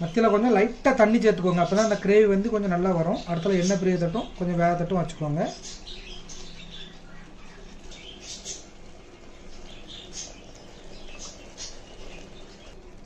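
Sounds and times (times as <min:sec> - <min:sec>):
faint steady hum: 0:00.0 - 0:13.0
gravy sizzling in a pot: 0:00.0 - 0:13.0
oil crackling and popping: 0:06.1 - 0:13.0.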